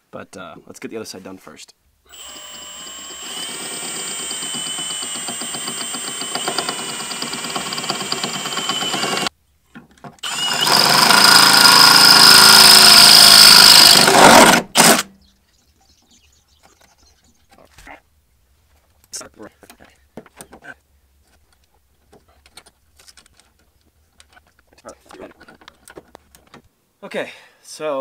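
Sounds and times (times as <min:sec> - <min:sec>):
cordless drill boring through steel: 0:02.1 - 0:09.3, 0:10.2 - 0:15.0.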